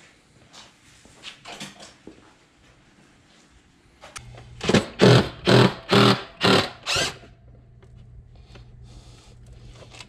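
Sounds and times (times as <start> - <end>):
impact wrench hammering: 4.6 - 7.2
faint low hum: 7.2 - 10.0.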